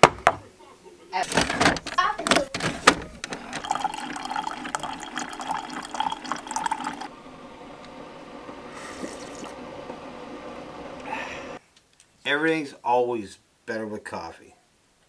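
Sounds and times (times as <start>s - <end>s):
coffee pouring into a mug: 3.1s - 9.8s
sip from a mug: 8.7s - 9.6s.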